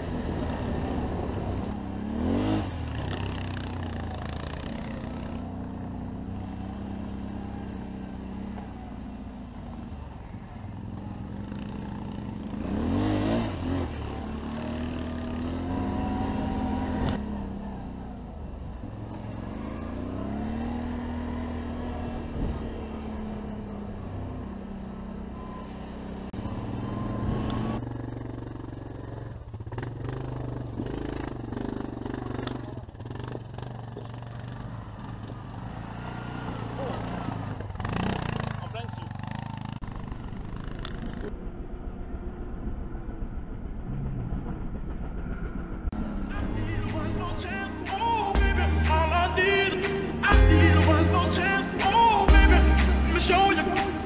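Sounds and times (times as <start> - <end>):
quad engine revving: 0.0 - 8.6, 10.9 - 18.0, 19.1 - 24.4, 25.3 - 41.3, 45.9 - 54.0.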